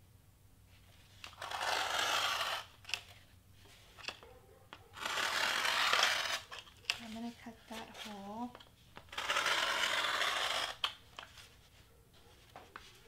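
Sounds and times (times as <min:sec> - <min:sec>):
knife scraping foam board: 0:01.0 - 0:04.2, 0:05.0 - 0:11.8.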